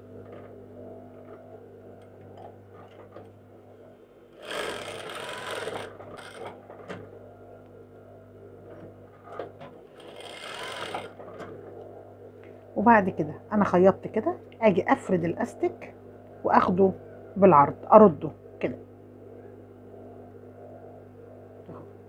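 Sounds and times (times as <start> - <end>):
sewing machine stitching: 4.4 - 6.6, 10.0 - 11.4.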